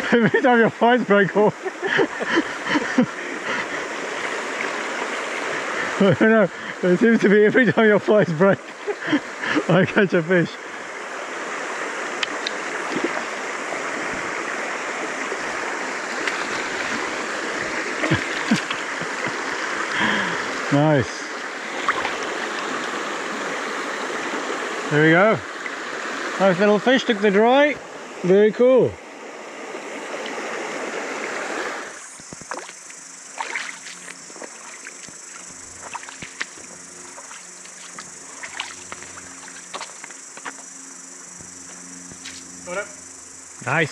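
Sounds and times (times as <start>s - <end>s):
stream flowing over stones: 0.0s - 41.5s.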